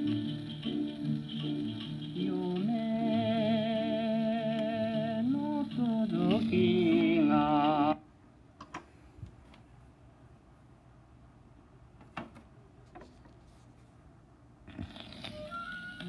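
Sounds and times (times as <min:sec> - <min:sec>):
record player music with vibrato: 0:00.0 - 0:08.0, 0:15.1 - 0:16.0.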